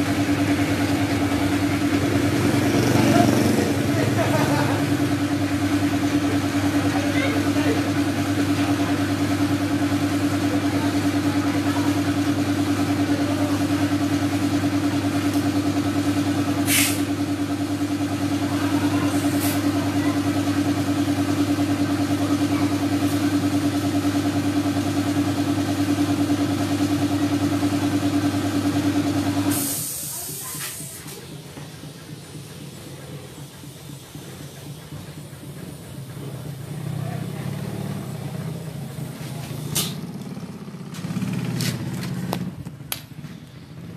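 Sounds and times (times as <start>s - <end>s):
piston air compressor running: 0.0s - 43.9s
air hissing from hose: 16.6s - 17.2s, 29.5s - 31.2s.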